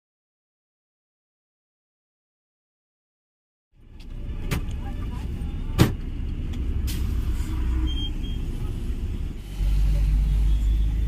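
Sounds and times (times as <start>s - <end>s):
bus engine running: 3.8s - 11.0s.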